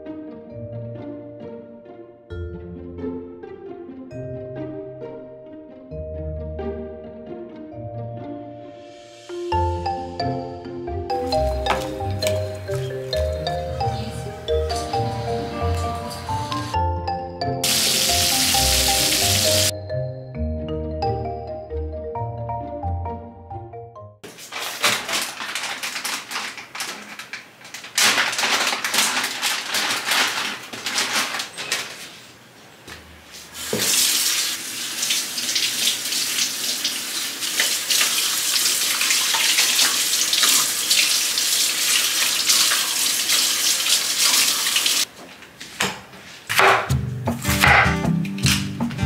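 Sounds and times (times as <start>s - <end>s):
tap running into sink: 11.5s - 13.3s, 33.7s - 34.2s, 39.1s - 41.1s.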